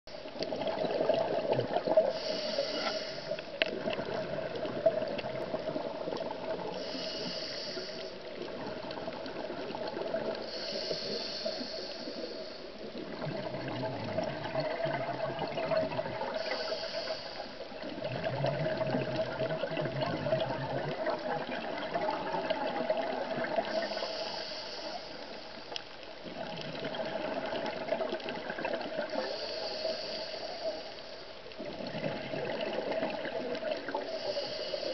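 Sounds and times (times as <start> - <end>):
exhaled air bubbling underwater: 0.1 - 34.9
regulator inhale hiss: 1.9 - 3.7, 6.4 - 8.5, 9.9 - 13.0, 16.2 - 17.9, 23.4 - 25.8, 29.1 - 31.4, 33.8 - 34.9.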